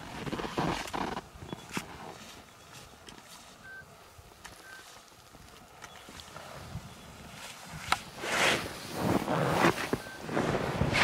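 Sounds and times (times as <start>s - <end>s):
footsteps in snow: 0.0s - 3.6s
faint short beeps: 3.6s - 3.9s, 4.6s - 5.0s, 10.0s - 10.3s.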